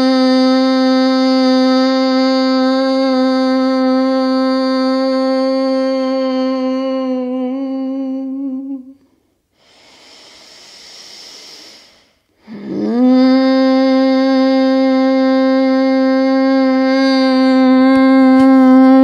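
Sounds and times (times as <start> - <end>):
woman humming a steady note: 0.0 - 9.0, 12.4 - 19.0
deep breath through nose: 9.5 - 12.8.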